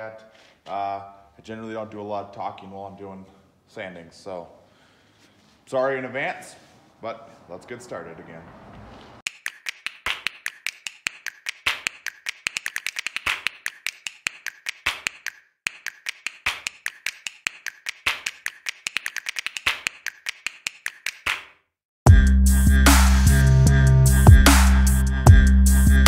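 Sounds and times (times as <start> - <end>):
orbital sander clicking: 9.3 - 21.3.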